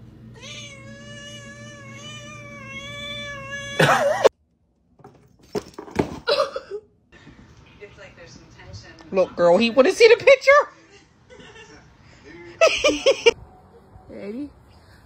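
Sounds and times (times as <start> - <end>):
cat meowing: 0.4 - 4.1.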